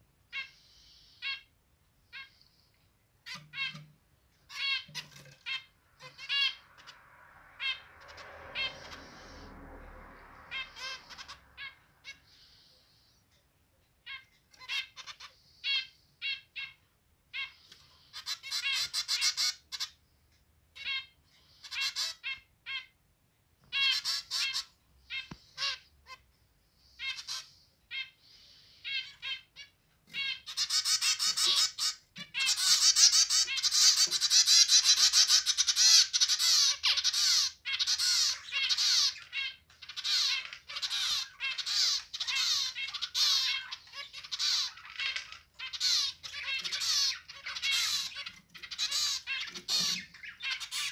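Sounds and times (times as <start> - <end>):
finches calling and singing: 7.6 - 13.3, 26.8 - 50.9.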